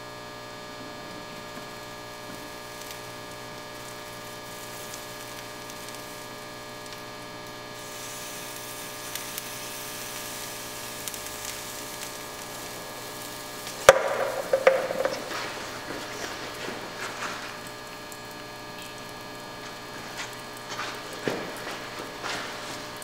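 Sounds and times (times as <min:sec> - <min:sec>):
electrical hum: 0:00.0 - 0:23.0
liquid nitrogen hissing: 0:00.4 - 0:23.0
cracks and clicks: 0:11.0 - 0:23.0
sharp knock: 0:13.9 - 0:15.3.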